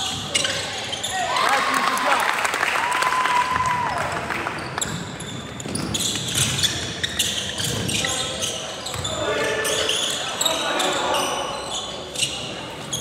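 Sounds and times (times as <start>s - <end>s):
shoe squeak on court: 0.0s - 1.3s, 4.6s - 13.0s.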